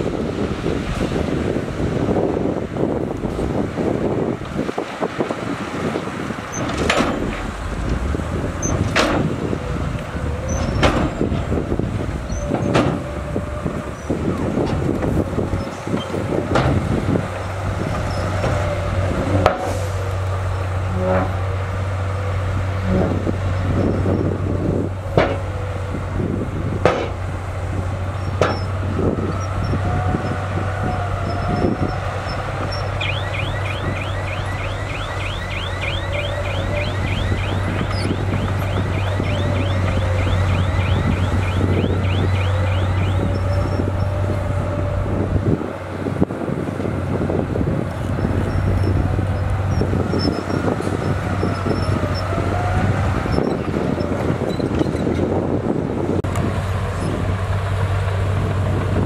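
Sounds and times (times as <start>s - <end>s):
heavy diesel engines droning: 0.0s - 59.0s
knocks and clanks: 6.5s - 11.6s, 12.3s - 13.1s, 14.6s - 18.7s, 25.1s - 25.5s, 26.8s - 27.2s, 28.3s - 28.7s.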